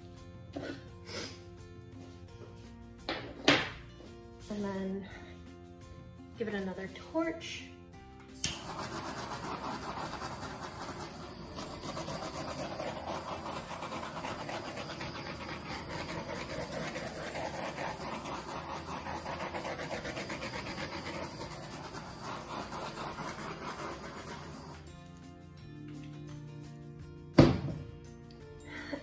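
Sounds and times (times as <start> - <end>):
torch flame hissing: 8.3 - 24.8.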